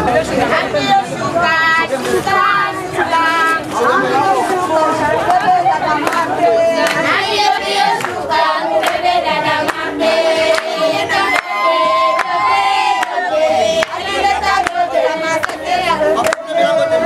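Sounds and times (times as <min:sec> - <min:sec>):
women singing together: 0:00.1 - 0:17.0
rhythmic hand clapping: 0:04.4 - 0:17.0.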